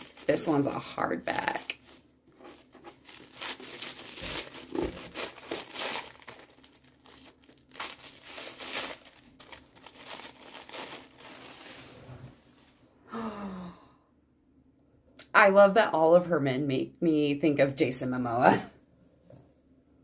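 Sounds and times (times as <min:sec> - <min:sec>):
tissue paper rustling and ripping: 0:00.0 - 0:12.4.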